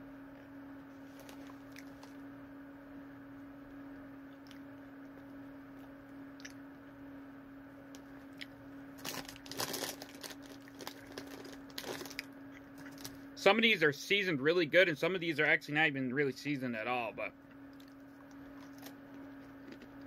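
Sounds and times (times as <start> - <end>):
steady low hum: 0.0 - 20.0
pretzels crunching: 1.0 - 2.2, 8.3 - 13.2, 17.7 - 20.0
plastic bag crinkling: 9.0 - 13.2, 17.8 - 19.0.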